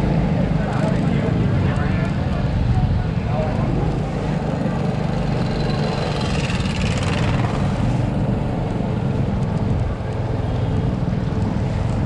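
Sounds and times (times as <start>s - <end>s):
traffic engine rumble: 0.0s - 12.0s.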